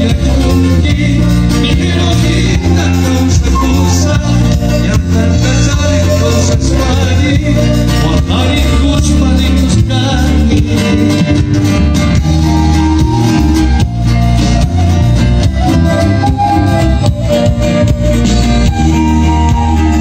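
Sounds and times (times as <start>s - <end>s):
man singing into a microphone: 0.0s - 13.0s
live band playing latin music: 0.0s - 20.0s.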